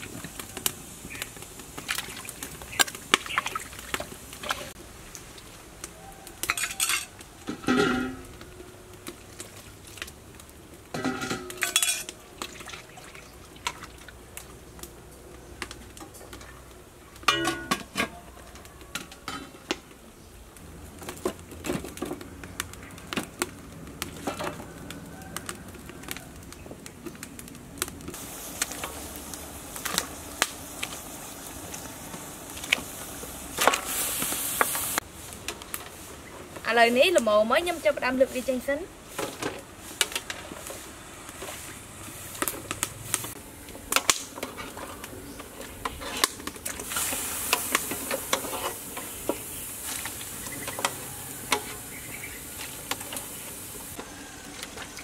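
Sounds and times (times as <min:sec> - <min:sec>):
pot boiling and hissing: 0:00.0 - 0:55.0
metal pots and lids clanking: 0:06.4 - 0:08.4, 0:10.9 - 0:12.2, 0:17.2 - 0:19.8, 0:24.2 - 0:24.7, 0:50.4 - 0:52.0.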